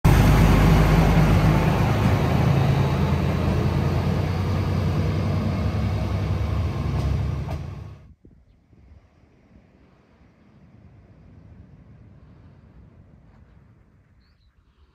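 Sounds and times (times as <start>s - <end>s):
diesel railcar rumbling: 0.0s - 8.1s.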